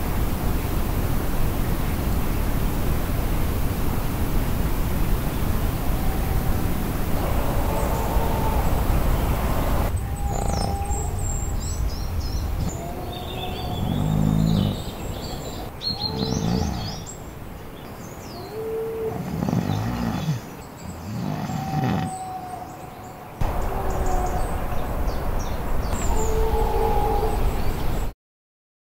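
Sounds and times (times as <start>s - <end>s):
steady hiss: 0.0s - 28.1s
birds chirping: 5.0s - 28.1s
low drawn-out animal calls: 5.6s - 17.1s, 18.4s - 28.0s.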